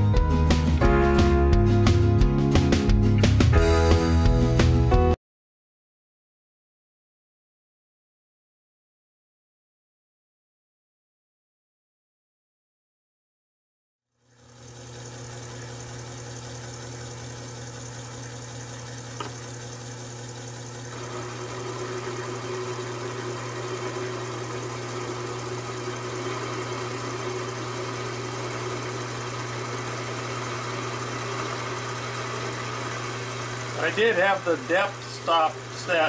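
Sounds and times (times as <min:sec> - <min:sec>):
lathe motor hum: 0:14.2 - 0:36.0.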